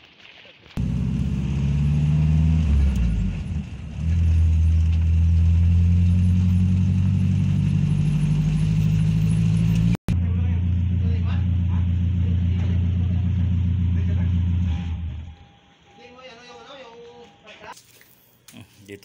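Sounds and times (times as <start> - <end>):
vehicle engine hum from cabin: 0.8 - 15.8.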